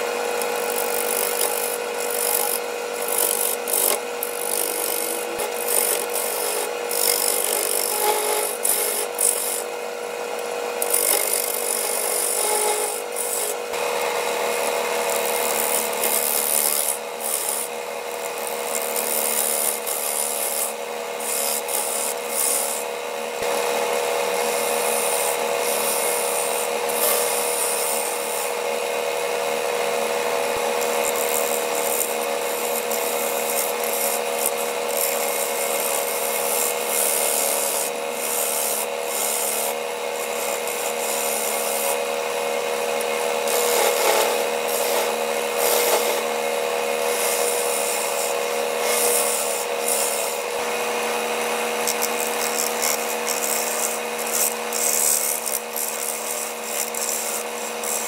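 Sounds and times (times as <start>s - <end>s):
lathe motor hum: 0.0s - 58.0s
turning tool scraping wood: 0.0s - 58.0s.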